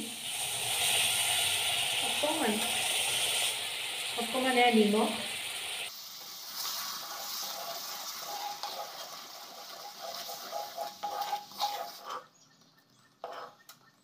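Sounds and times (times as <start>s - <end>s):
syrup sizzling and bubbling in a wok: 0.0s - 12.2s
wooden spatula scraping pan: 6.7s - 12.4s, 13.2s - 13.7s.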